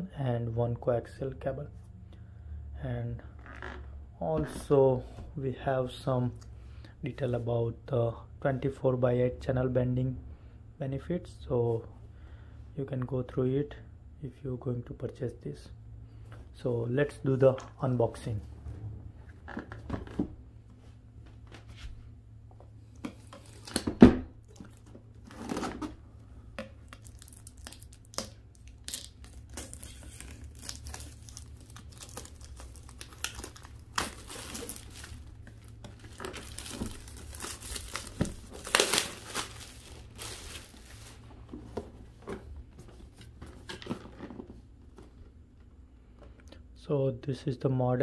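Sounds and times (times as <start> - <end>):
plastic wrap crackling: 26.8 - 41.3.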